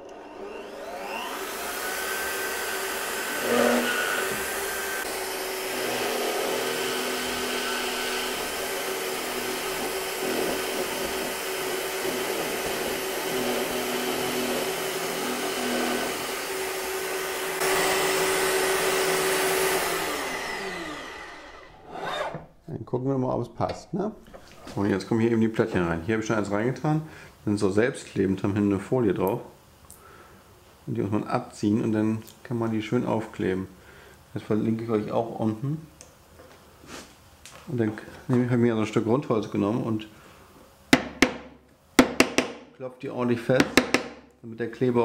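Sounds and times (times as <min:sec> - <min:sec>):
drill bit boring wood: 0:00.0 - 0:22.4
drill press motor whine: 0:00.0 - 0:22.4.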